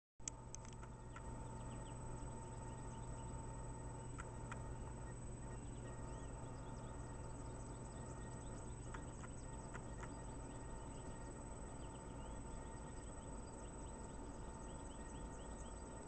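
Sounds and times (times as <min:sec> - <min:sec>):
steady low hum: 0:00.2 - 0:16.0
faint high bird chirps: 0:00.6 - 0:16.0
woodpecker tapping on wood: 0:08.8 - 0:10.2.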